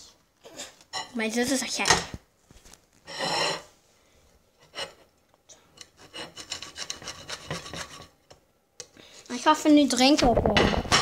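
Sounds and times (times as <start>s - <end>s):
rasping scrapes and rubbing: 5.8s - 8.2s.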